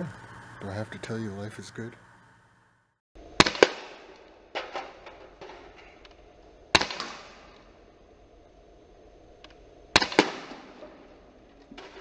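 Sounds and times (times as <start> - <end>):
air pistol cracks: 3.4 - 4.9, 6.8 - 7.7, 9.4 - 10.9.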